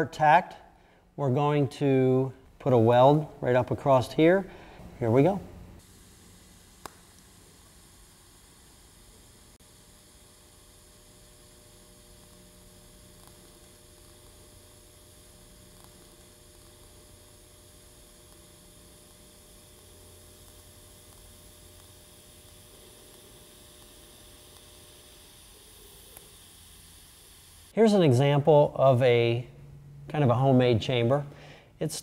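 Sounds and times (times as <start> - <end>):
welding arc humming and hissing: 2.0 - 31.2.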